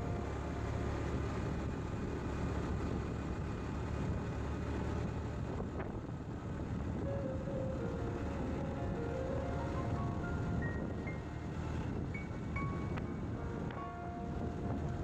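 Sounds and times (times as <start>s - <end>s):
motorcycle engine: 0.0s - 12.5s
wind buffeting microphone: 0.9s - 15.0s
faint rising tone: 7.0s - 15.0s.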